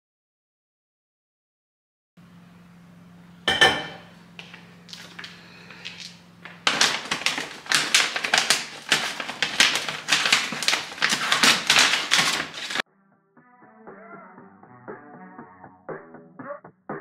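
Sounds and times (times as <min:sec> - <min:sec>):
paper bag crinkling and rustling: 0:04.4 - 0:12.8.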